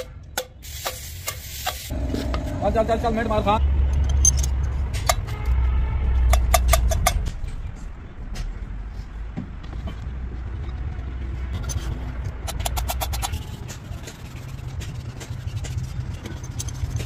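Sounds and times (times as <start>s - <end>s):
engine rumbling: 1.9s - 17.0s.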